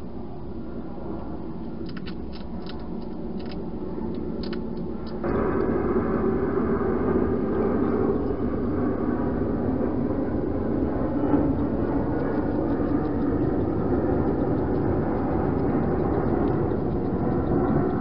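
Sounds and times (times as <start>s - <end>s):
rumbling background noise: 0.0s - 18.0s
light clicks: 1.8s - 5.7s, 11.6s - 18.0s.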